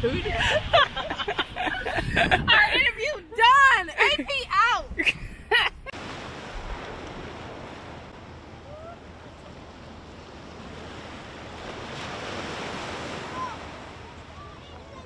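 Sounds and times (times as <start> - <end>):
small waves washing on beach: 5.9 - 15.0.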